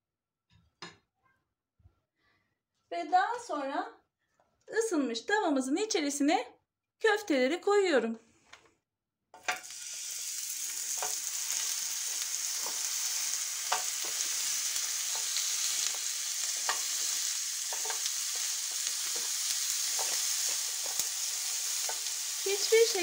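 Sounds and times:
patties sizzling in grill pan: 9.4s - 23.0s.

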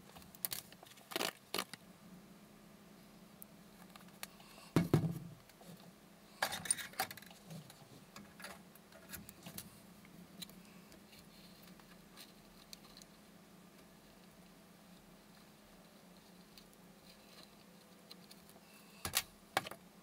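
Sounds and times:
knock on work table: 4.8s - 5.3s.

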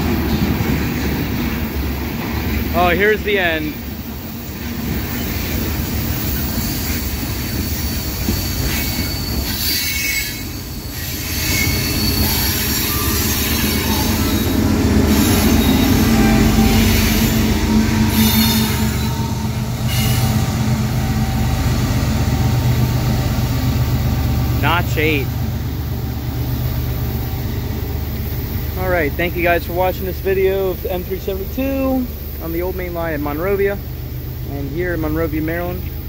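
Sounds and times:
diesel locomotives working hard: 0.0s - 36.0s
train wheels squealing: 4.3s - 20.6s.

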